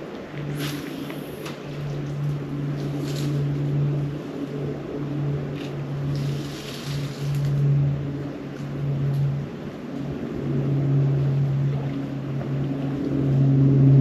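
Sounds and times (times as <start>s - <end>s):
low engine hum: 0.0s - 14.0s
rustles: 0.1s - 9.5s.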